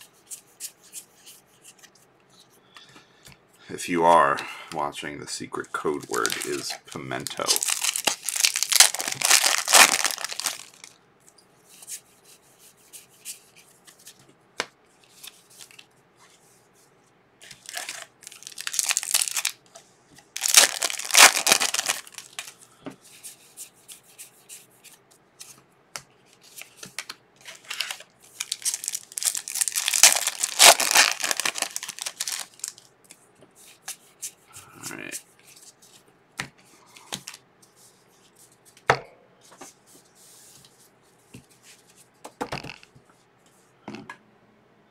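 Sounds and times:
foil packs tearing and crinkling: 0:05.9 - 0:10.9, 0:17.5 - 0:19.6, 0:20.4 - 0:22.5, 0:27.5 - 0:32.8.

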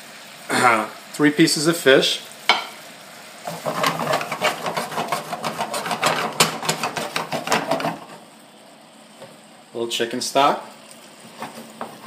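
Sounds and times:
frying pan scraping on metal grate: 0:03.5 - 0:08.2, 0:11.2 - 0:12.0.

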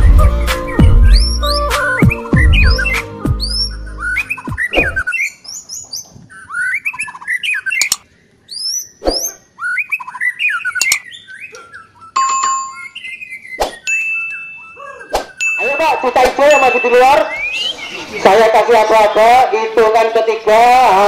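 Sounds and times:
songbird singing: 0:00.0 - 0:21.0
sharp clicks: 0:07.8 - 0:08.1, 0:10.8 - 0:11.0.

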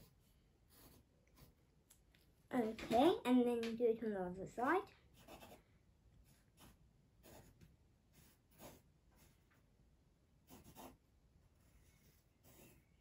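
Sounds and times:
pencil scratching on paper: 0:00.0 - 0:01.6, 0:05.1 - 0:09.5, 0:10.4 - 0:13.0.

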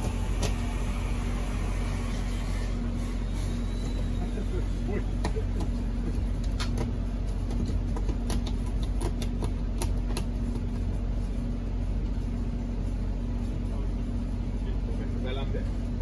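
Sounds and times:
low mechanical hum: 0:00.0 - 0:16.0
clicks and squeaks of rubber gasket: 0:03.3 - 0:04.4.

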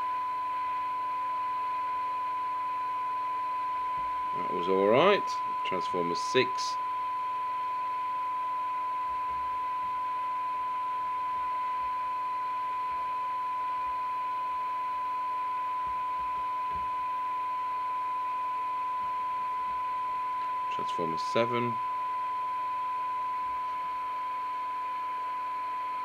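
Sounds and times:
steady test tone: 0:00.0 - 0:26.0
radio hiss: 0:04.3 - 0:06.8, 0:20.7 - 0:21.8.

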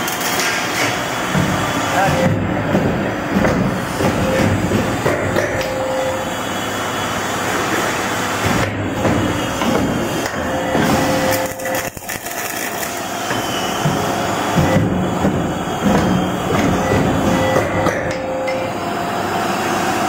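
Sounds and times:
machine mechanical clatter: 0:08.5 - 0:18.2
sharp machine knocks: 0:13.8 - 0:18.2.

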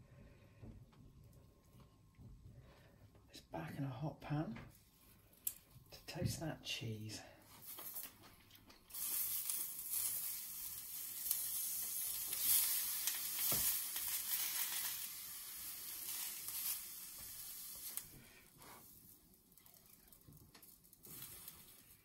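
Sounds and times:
wrap sizzling in frying pan: 0:07.5 - 0:22.0.

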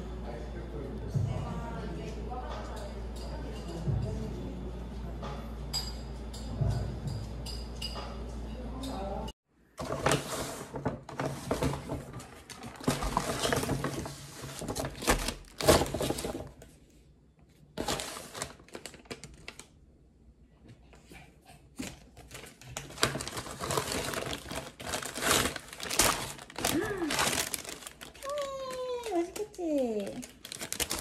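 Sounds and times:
paper rustling and crinkling: 0:09.8 - 0:16.8, 0:17.8 - 0:19.7, 0:21.8 - 0:31.0.

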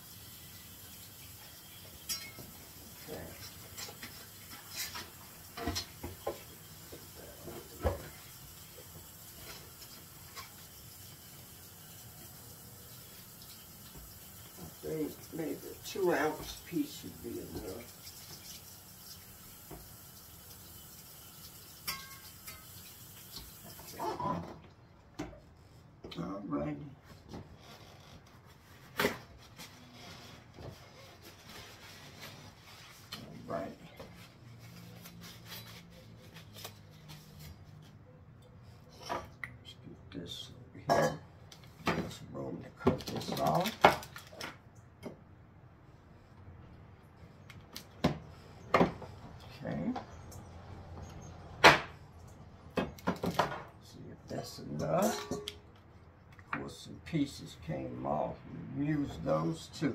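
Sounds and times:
kitchen handling noises: 0:54.8 - 0:55.6.

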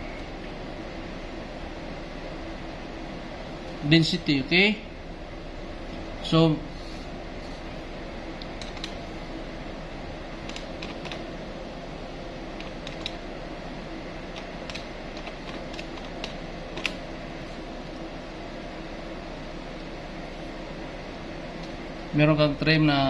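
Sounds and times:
steady background hum: 0:00.0 - 0:23.0
calculator keys clicking: 0:10.5 - 0:11.2, 0:12.6 - 0:13.2, 0:14.4 - 0:17.0.

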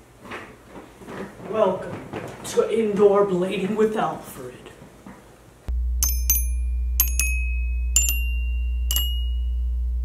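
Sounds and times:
bell-like chime notes: 0:06.0 - 0:10.0.

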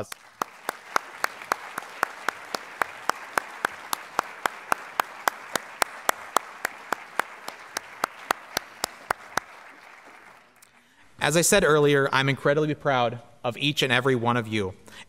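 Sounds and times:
nearby person clapping: 0:00.0 - 0:10.8
audience applauding: 0:00.0 - 0:10.9.

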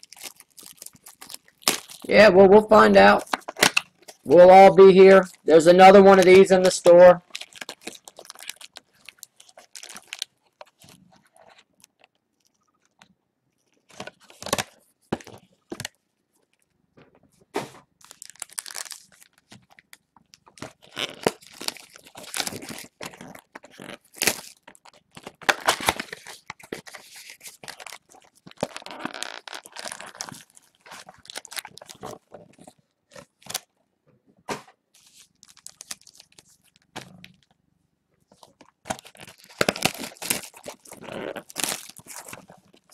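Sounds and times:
plastic wrappers crinkling and tearing: 0:00.0 - 0:02.2, 0:03.0 - 0:04.3, 0:04.9 - 0:16.6, 0:18.0 - 0:33.7, 0:35.0 - 0:37.6, 0:38.3 - 0:42.9.

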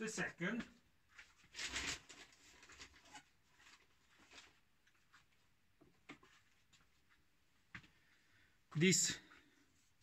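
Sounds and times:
faint clicks and rustles: 0:00.7 - 0:08.1.

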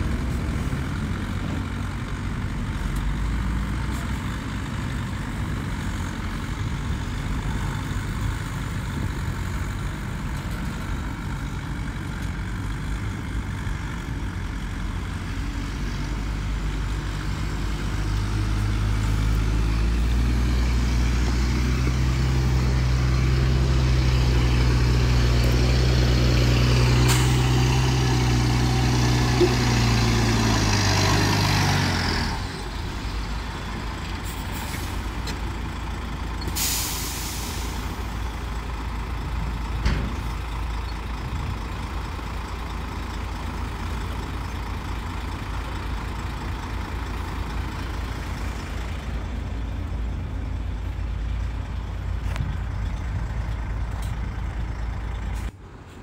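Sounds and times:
heavy diesel engine running: 0:00.0 - 0:56.0
hiss of released air: 0:36.5 - 0:38.1.

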